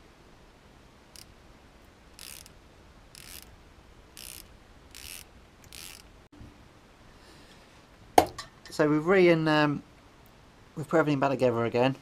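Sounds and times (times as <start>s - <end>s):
socket ratchet clicking: 2.2s - 2.6s, 3.2s - 3.5s, 4.2s - 6.1s.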